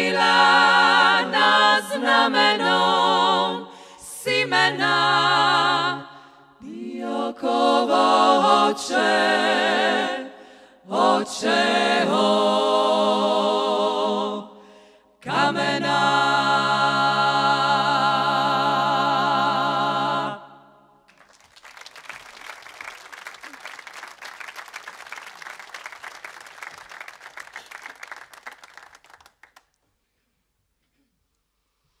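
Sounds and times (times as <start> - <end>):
women's choir singing a cappella: 0.0 - 20.8
audience applauding: 21.1 - 29.7.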